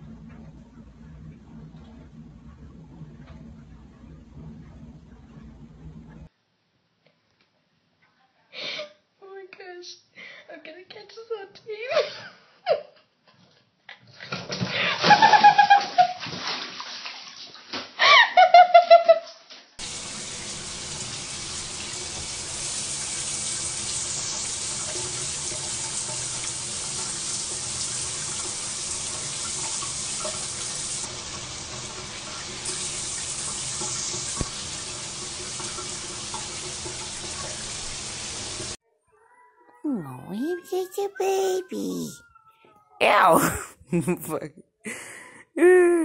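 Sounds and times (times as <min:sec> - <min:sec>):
bathtub splash: 0:14.3 - 0:18.0
tap running: 0:19.8 - 0:38.7
person crying out: 0:39.8 - 0:42.2, 0:43.0 - 0:44.5, 0:45.6 - 0:46.0.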